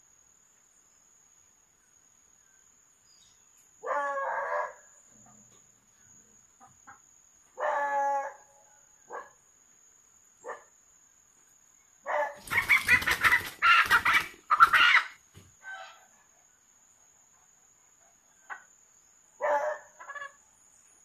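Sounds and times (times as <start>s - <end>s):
wings flapping: 12.4s - 15.1s
chicken squawking: 12.4s - 16.0s.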